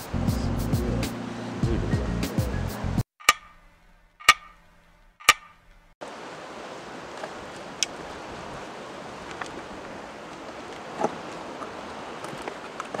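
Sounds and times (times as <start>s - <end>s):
sharp ringing clicks: 3.2s - 5.9s
outdoor background hiss: 3.6s - 13.0s.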